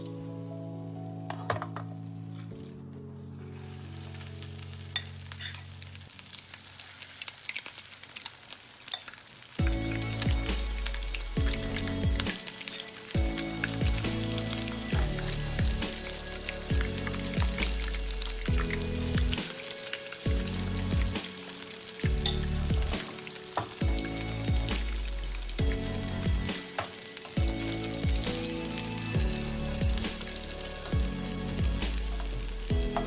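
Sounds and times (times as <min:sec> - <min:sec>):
oil sizzling in a pan: 0:03.4 - 0:33.0
music with strong bass line: 0:09.6 - 0:12.4, 0:13.2 - 0:19.5, 0:20.3 - 0:21.3, 0:22.0 - 0:23.1, 0:23.8 - 0:26.6, 0:27.4 - 0:33.0.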